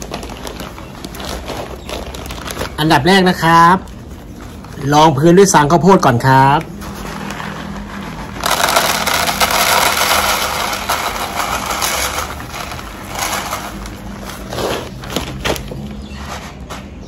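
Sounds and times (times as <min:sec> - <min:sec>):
bedding pouring into plastic basket: 0:07.0 - 0:15.4.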